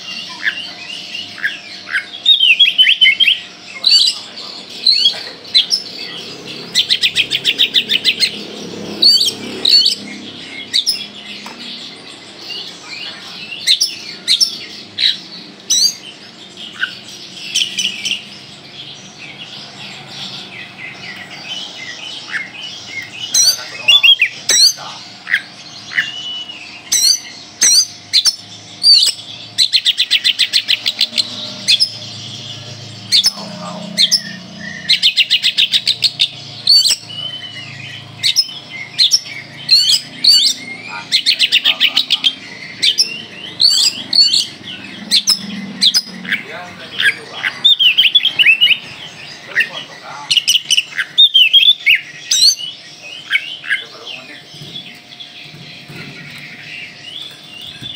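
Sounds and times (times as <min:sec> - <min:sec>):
bird singing whistled notes: 0:00.0 - 0:04.0, 0:20.4 - 0:57.9.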